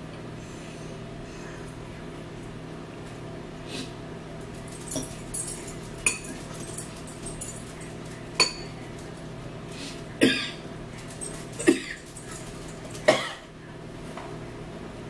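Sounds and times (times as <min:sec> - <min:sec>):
forks clinking against bowls: 0:04.5 - 0:09.2, 0:10.2 - 0:13.3.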